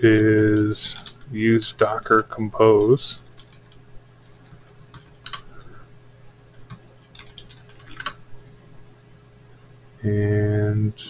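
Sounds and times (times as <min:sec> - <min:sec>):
faint low hum: 0:00.0 - 0:11.0
keyboard keys clicking: 0:04.9 - 0:05.5, 0:06.5 - 0:08.2.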